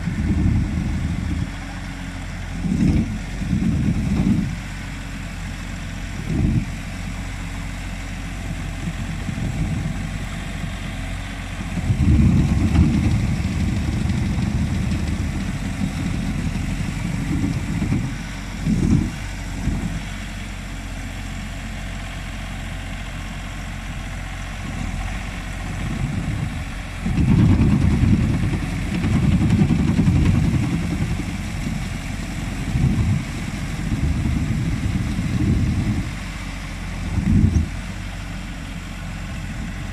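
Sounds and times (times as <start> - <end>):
engine running steadily: 0.0 - 39.9
low engine rumble: 0.0 - 39.9.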